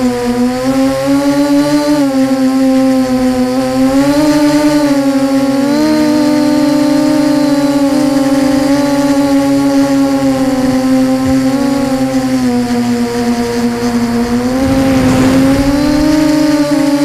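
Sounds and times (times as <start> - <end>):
electric drone motors humming: 0.0 - 17.0.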